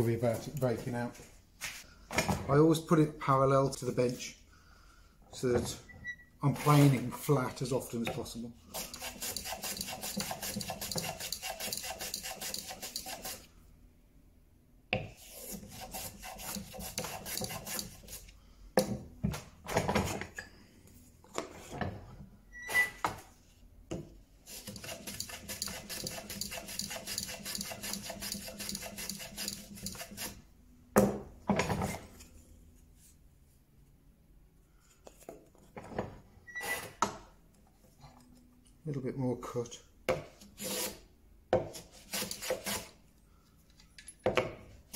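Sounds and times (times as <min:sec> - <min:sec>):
hand plane shaving wood: 0:08.8 - 0:13.4, 0:15.2 - 0:18.2, 0:24.5 - 0:30.4, 0:41.8 - 0:42.9.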